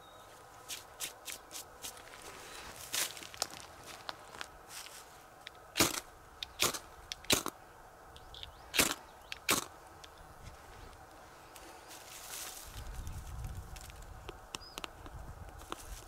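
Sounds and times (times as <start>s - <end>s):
dry wood cracking: 0.7s - 7.6s, 10.9s - 16.0s.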